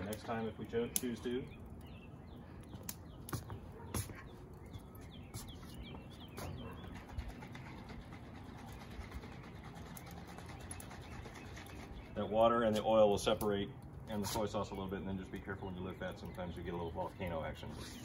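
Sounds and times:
birds chirping: 0.0s - 18.0s
sharp clicks: 2.6s - 3.4s.

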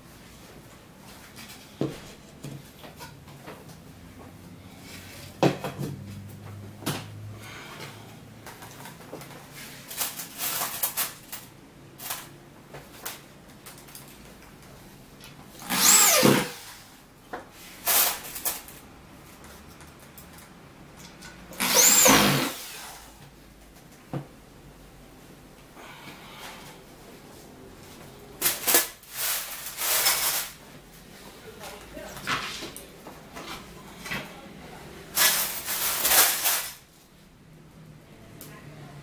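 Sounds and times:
electric drill driving screws: 15.6s - 16.8s, 21.6s - 23.0s.

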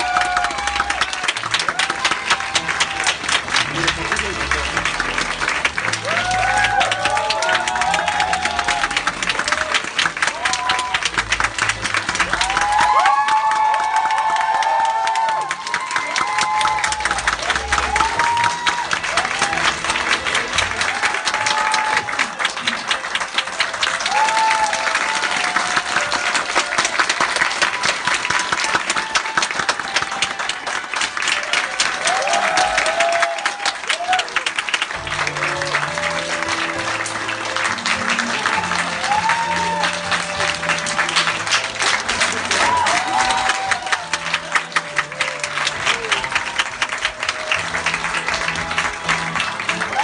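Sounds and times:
audience clapping: 0.0s - 50.0s
crowd applauding: 0.0s - 50.0s.

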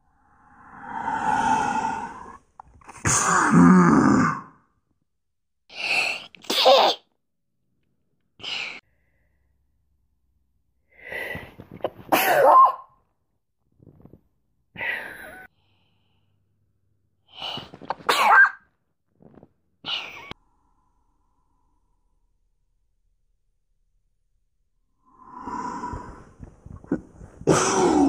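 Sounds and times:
soft breaths: 0.0s - 2.6s, 10.8s - 12.0s, 25.0s - 28.0s
woman sneezing: 12.1s - 12.9s.

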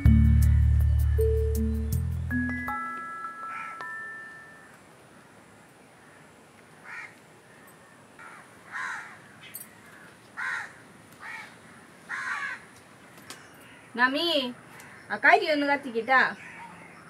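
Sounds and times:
crow cawing: 3.5s - 3.8s, 6.8s - 7.2s, 8.2s - 12.8s, 14.7s - 15.2s.

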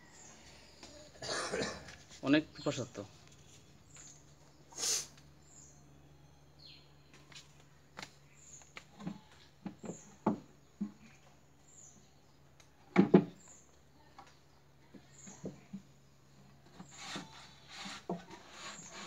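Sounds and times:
faint high chirp: 5.4s - 7.1s.

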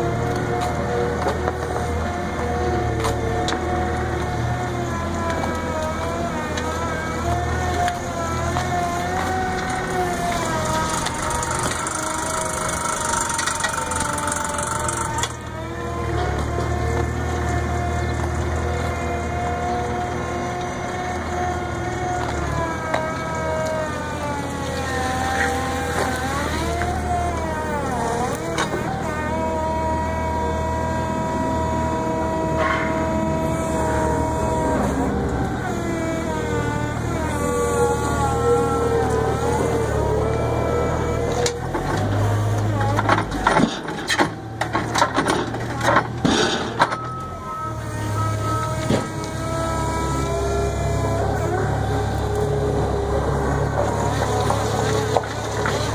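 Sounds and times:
electric hydraulic pump whining: 1.2s - 55.9s
concrete slab clattering into truck bed: 42.9s - 47.0s.

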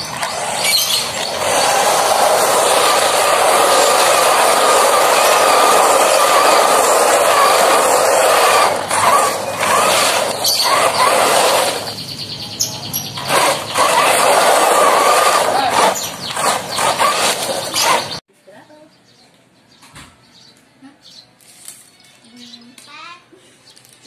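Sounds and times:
electric motor and gears whining: 0.0s - 12.0s, 13.0s - 18.2s.

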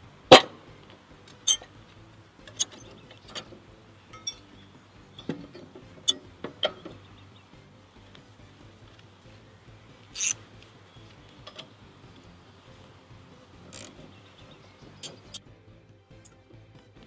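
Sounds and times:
metal blade clinking: 4.1s - 4.7s, 10.1s - 10.4s.

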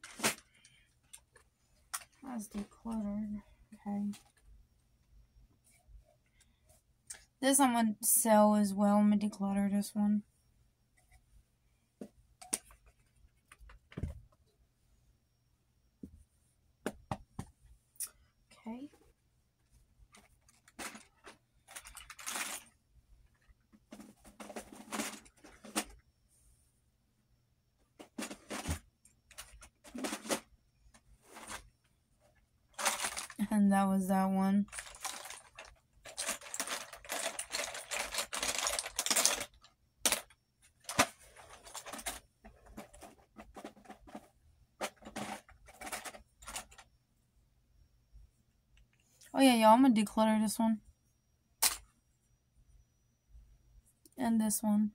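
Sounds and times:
plastic items rattling in basket: 0.0s - 0.5s, 20.2s - 22.8s, 23.9s - 26.0s, 28.0s - 30.5s, 32.7s - 33.5s, 34.7s - 46.8s.

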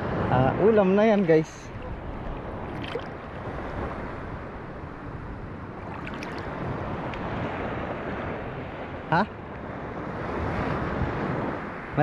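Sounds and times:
wind on microphone: 0.0s - 12.0s
sea water lapping: 0.2s - 8.5s
small water splashes: 1.1s - 4.0s, 5.8s - 7.2s.

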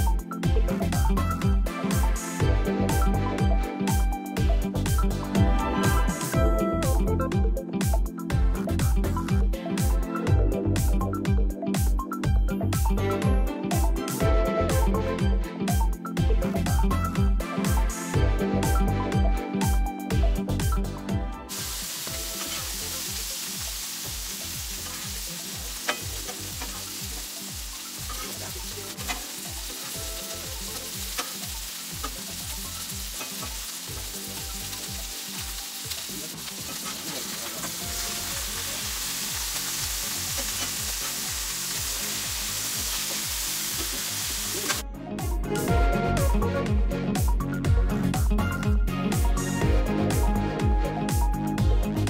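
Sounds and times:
food sizzling on griddle: 21.5s - 44.8s.

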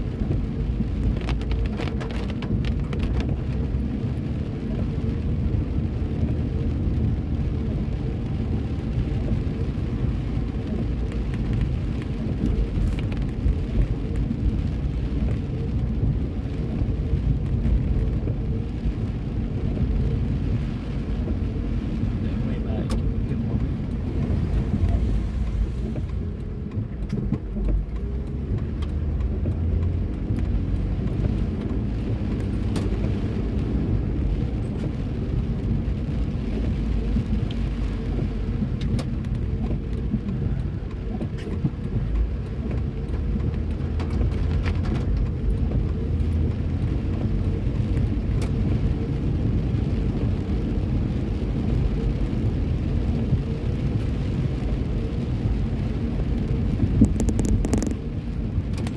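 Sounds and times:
car driving on wet pavement: 0.0s - 58.9s
light ticks: 22.8s - 33.6s, 35.6s - 54.7s, 55.4s - 58.9s.

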